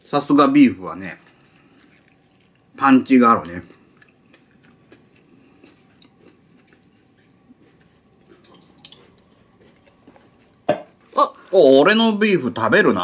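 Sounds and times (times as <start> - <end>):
person chewing food: 0.9 - 11.6.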